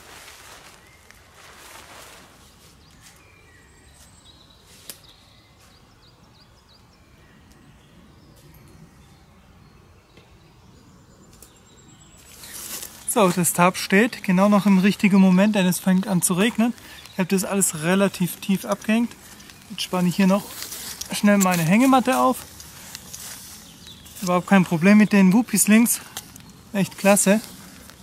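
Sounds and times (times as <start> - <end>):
tarp fabric rustling: 0.0 - 3.2, 12.2 - 13.5, 16.4 - 25.0.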